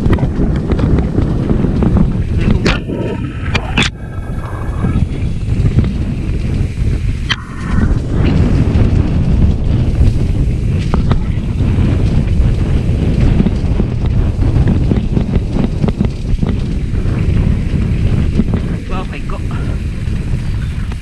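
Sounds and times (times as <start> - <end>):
dirt bike engine running: 0.0 - 21.0
wind buffeting microphone: 0.0 - 21.0.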